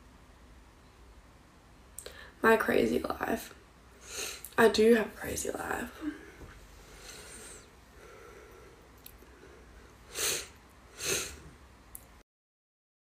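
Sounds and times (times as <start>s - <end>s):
faint room noise: 0.0s - 12.2s
woman breathing: 2.0s - 2.4s, 4.0s - 4.5s, 6.0s - 11.5s.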